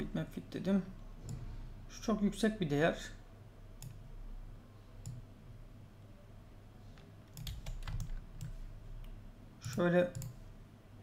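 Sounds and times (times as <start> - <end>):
faint low hum: 0.0 - 11.0
computer mouse clicks: 3.8 - 4.0, 5.0 - 5.3, 7.0 - 10.4.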